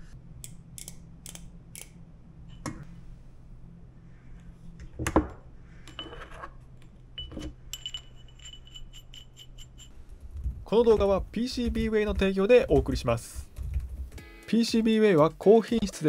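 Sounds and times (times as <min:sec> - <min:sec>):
metal tools clinking on wood: 0:07.2 - 0:10.0.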